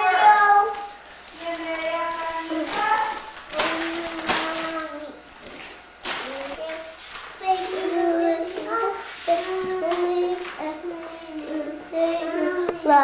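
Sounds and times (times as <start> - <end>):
child singing: 0.0 - 5.2, 6.2 - 13.0.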